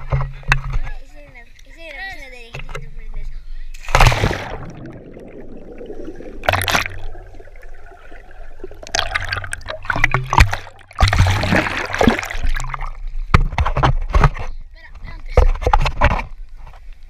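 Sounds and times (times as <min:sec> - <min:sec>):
water splashing and sloshing: 0:03.7 - 0:17.0.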